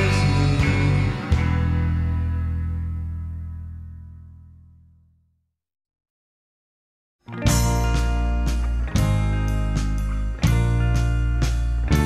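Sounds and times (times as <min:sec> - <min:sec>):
rock chord ringing out: 0:00.0 - 0:04.4, 0:07.3 - 0:12.0.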